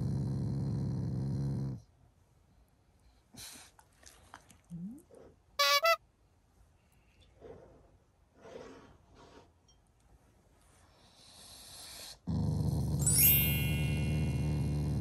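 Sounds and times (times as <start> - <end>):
dog growling: 0.0 - 1.8, 12.2 - 15.0
short high-pitched sounds: 13.1 - 14.7.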